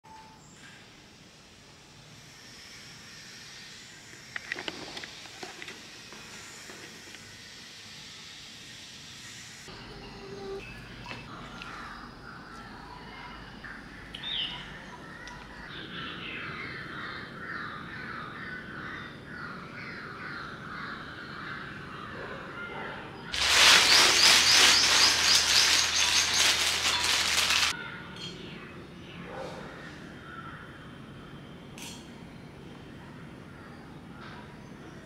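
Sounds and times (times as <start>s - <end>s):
birds chirping: 23.3s - 27.8s
plastic bag crinkling: 23.4s - 27.7s.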